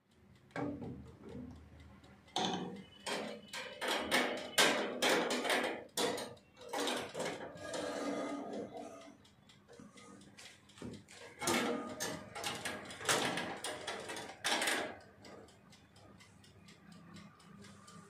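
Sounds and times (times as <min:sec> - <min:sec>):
metal oven rack scraping and clanking: 0:02.4 - 0:09.0, 0:11.4 - 0:14.9.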